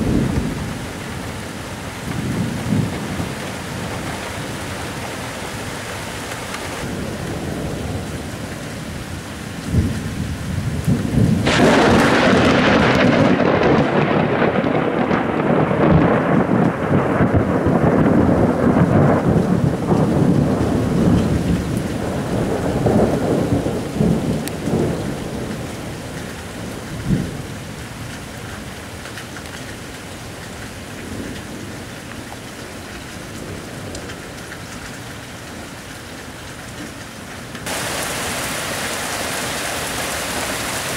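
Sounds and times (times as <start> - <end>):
rolling thunder: 0.0 - 4.4, 6.8 - 27.6
steady rain: 0.0 - 40.9
thunder crack: 10.8 - 25.6.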